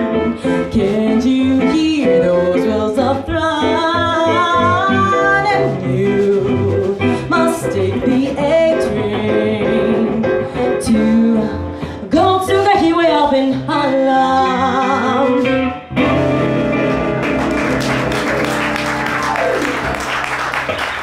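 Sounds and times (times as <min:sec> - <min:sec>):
woman singing: 0:00.0 - 0:15.8
jazz band playing swing: 0:00.0 - 0:21.0.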